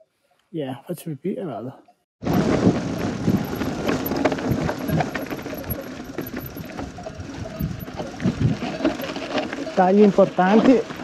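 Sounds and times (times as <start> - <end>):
wind on microphone: 2.2 - 9.4
mountain bike rattling over rocks: 2.3 - 11.0.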